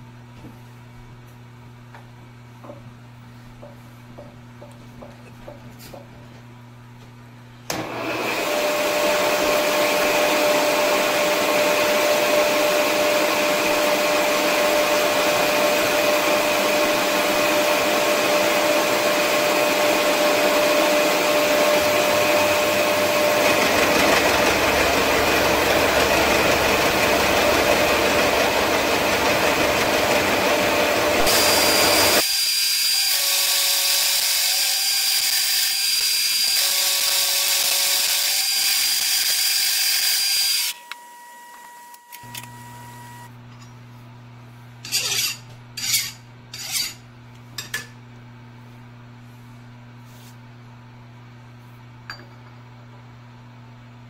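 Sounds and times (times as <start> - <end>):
milling machine cutting metal: 7.7 - 41.0
milling machine whine: 7.7 - 43.3.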